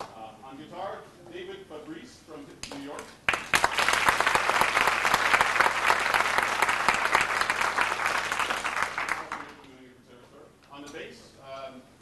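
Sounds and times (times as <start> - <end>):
audience applauding: 3.3 - 9.6.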